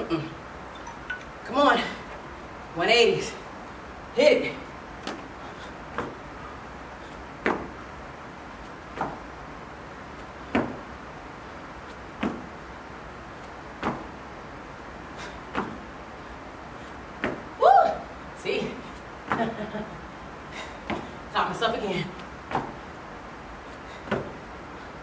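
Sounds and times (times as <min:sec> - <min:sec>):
sneakers thumping on rubber floor: 0:07.4 - 0:07.8, 0:08.9 - 0:09.3, 0:12.2 - 0:12.5, 0:15.5 - 0:15.9, 0:17.2 - 0:17.5, 0:22.5 - 0:22.8, 0:24.0 - 0:24.4.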